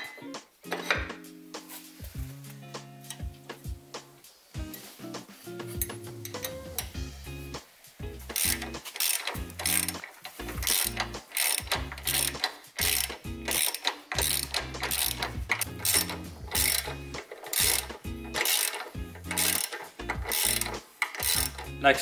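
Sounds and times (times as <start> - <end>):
socket ratchet clicking: 8.2 - 21.8.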